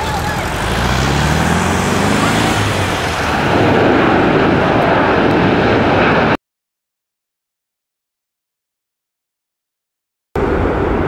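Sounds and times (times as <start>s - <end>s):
jet engines at takeoff: 0.0s - 6.4s, 10.4s - 11.0s.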